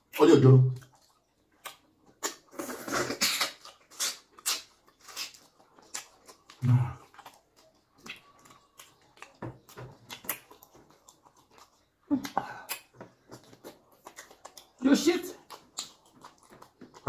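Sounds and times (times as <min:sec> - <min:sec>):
mouth eating smacks and clicks: 0:00.0 - 0:17.0.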